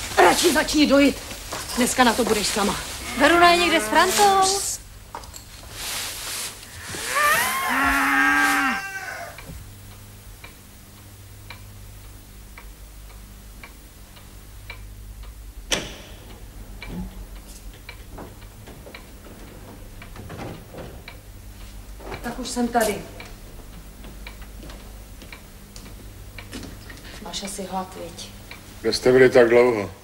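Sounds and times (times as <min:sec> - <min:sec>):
cow mooing: 0:03.0 - 0:04.6, 0:06.8 - 0:09.4.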